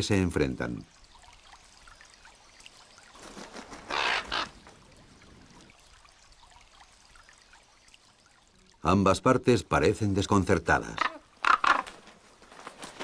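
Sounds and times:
faint trickle of water: 0:00.0 - 0:13.0
raven squawking harshly: 0:03.9 - 0:04.6, 0:10.9 - 0:12.0.

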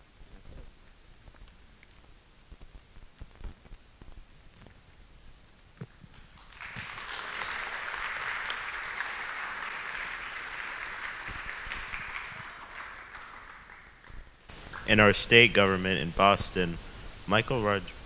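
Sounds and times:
audience applauding: 0:06.2 - 0:15.0.

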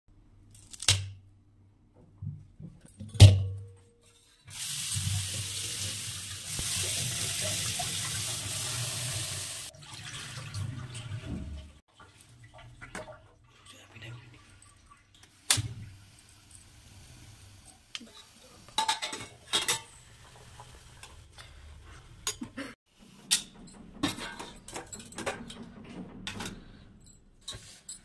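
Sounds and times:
corn cob snapping: 0:00.6 - 0:01.2
tap water splashing into pot: 0:09.7 - 0:13.7
steel pot clattering: 0:18.0 - 0:21.5, 0:22.2 - 0:28.0.

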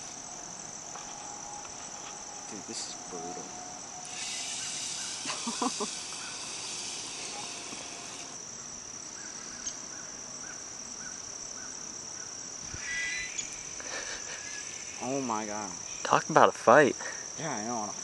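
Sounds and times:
high-pitched insect chorus: 0:00.0 - 0:18.0
hiss: 0:04.0 - 0:08.4.

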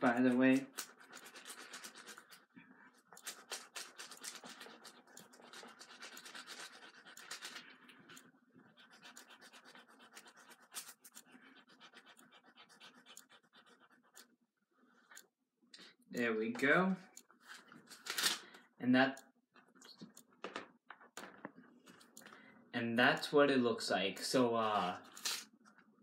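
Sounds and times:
gel pen scratching on paper: 0:00.0 - 0:14.3.

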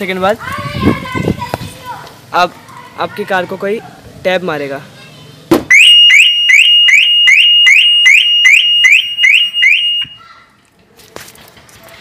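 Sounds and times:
car alarm rising chirps: 0:05.7 - 0:10.2.

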